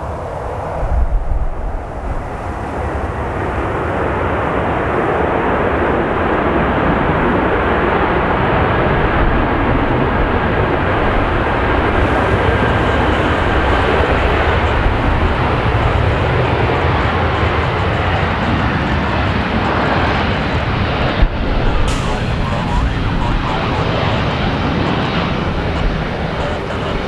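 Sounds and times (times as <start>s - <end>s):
jet engines roaring: 0.0s - 27.0s
faint steady whine: 9.2s - 27.0s.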